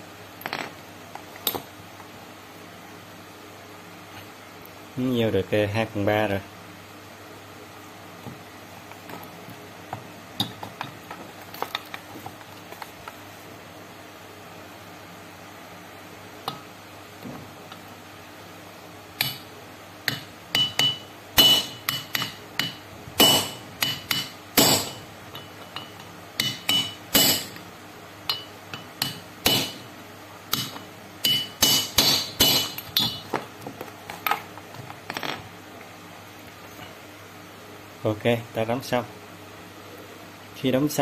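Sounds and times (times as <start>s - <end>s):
hammer tapping metal: 20.1s - 27.6s, 28.3s - 29.9s, 30.5s - 33.4s.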